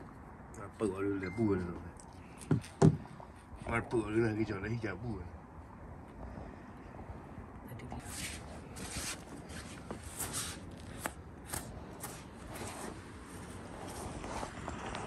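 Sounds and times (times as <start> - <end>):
knife slicing through hide: 10.2 - 13.0.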